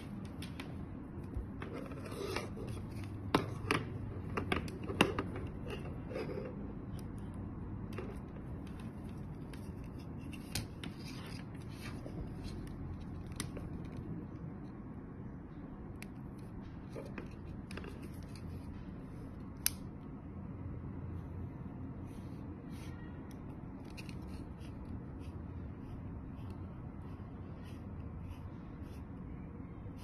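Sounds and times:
plastic cables handled: 23.3 - 24.8.

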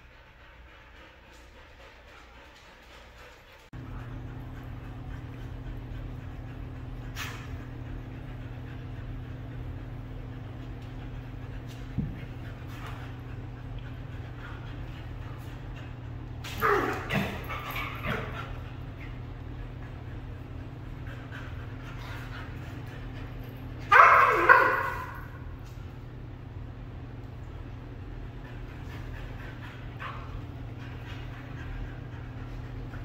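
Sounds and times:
low hum: 0.0 - 24.0
dogs play-wrestling: 0.0 - 26.0, 27.9 - 33.0.

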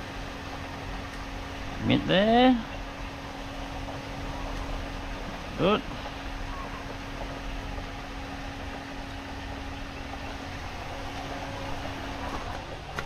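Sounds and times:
mechanical hum with low drone: 0.0 - 13.0
noisy hiss: 0.0 - 13.0.

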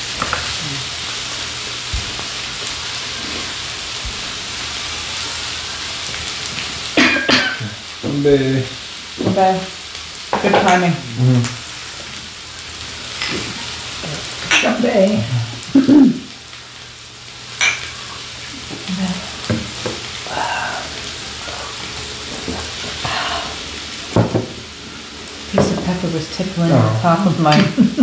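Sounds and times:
meat sizzling on a grill pan: 0.0 - 28.0
voices: 25.5 - 28.0.

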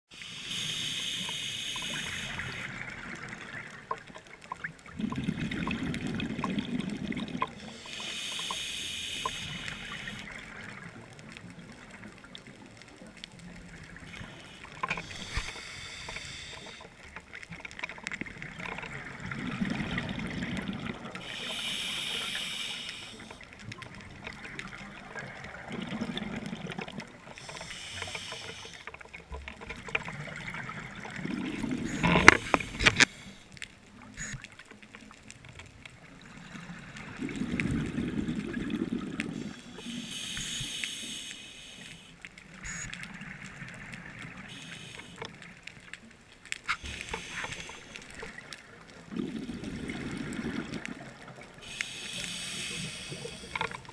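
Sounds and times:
diver breathing through regulator: 0.1 - 2.7, 7.6 - 10.2, 14.1 - 17.0, 21.2 - 23.4, 27.3 - 29.0, 39.3 - 42.1, 46.7 - 48.4, 51.6 - 53.9.

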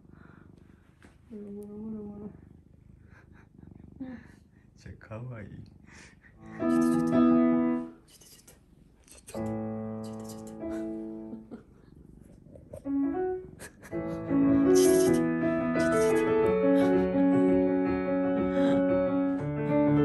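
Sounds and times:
piano chords: 6.4 - 8.0, 9.4 - 11.6, 12.7 - 20.0.

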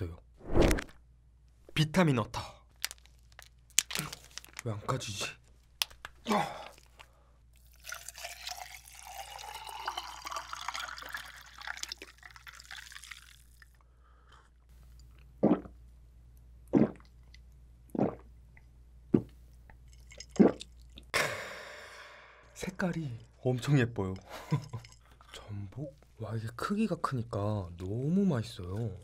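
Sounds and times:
liquid pouring into mug: 7.6 - 13.8
loud gulps: 15.4 - 15.8, 16.7 - 17.1, 17.9 - 18.3, 20.2 - 20.7.

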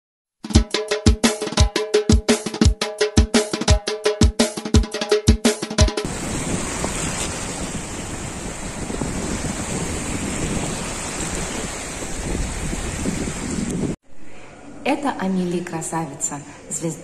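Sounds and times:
drum-led tune: 0.4 - 6.1
small waves washing onto shore: 6.0 - 14.0
wind on microphone: 6.1 - 14.0.

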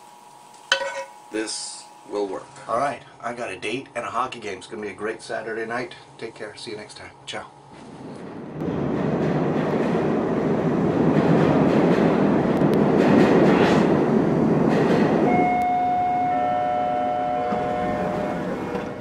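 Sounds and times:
steady rumbling noise: 7.4 - 15.3
steady tones sounding together: 15.3 - 19.0.

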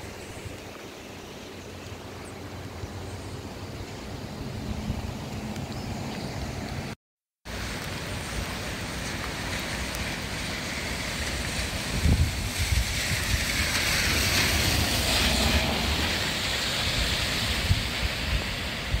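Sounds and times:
rain: 0.0 - 19.0
river rushing: 0.0 - 19.0
hiss: 7.5 - 19.0
wind buffeting microphone: 11.4 - 19.0.

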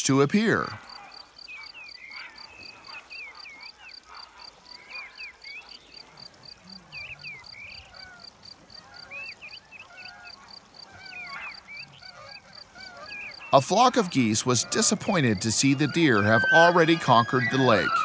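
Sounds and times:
birds chirping: 0.0 - 18.0
crickets chirping: 0.2 - 18.0.

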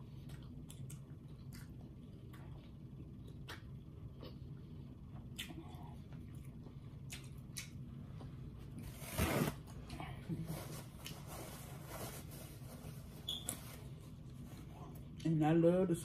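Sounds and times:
wet chewing and smacking: 0.0 - 7.9.

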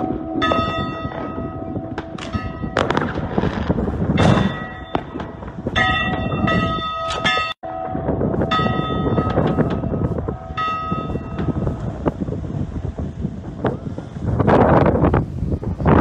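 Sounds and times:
church bells ringing: 0.0 - 12.2
fireworks banging: 0.0 - 16.0
low rumble: 0.0 - 16.0.

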